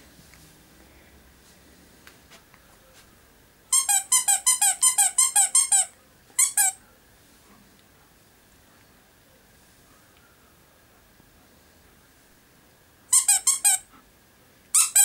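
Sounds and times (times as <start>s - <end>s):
squeaky dog toy squeaking: 3.7s - 6.8s, 13.1s - 13.9s, 14.7s - 15.0s.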